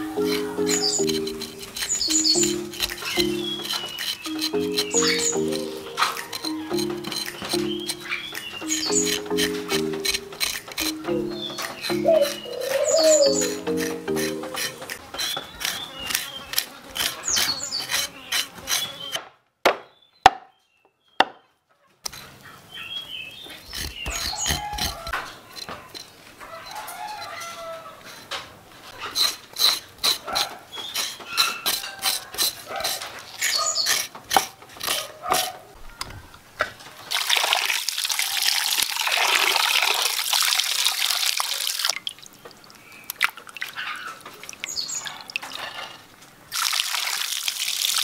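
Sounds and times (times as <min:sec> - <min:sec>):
dove cooing: 0:00.0 - 0:10.2, 0:10.8 - 0:14.9
background music with beat: 0:00.0 - 0:15.0
hens clucking: 0:00.0 - 0:16.2
knife chopping on wooden board: 0:23.8 - 0:25.3.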